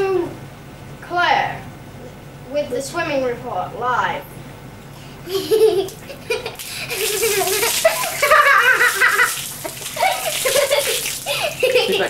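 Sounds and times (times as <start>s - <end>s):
girl laughing and giggling: 5.2s - 12.0s.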